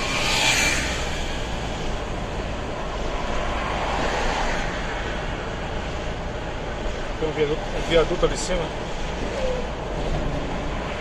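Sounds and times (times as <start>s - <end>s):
vehicle passing alongside: 0.0s - 7.8s
air rushing past car: 0.0s - 7.9s
tyres on asphalt: 0.0s - 11.0s.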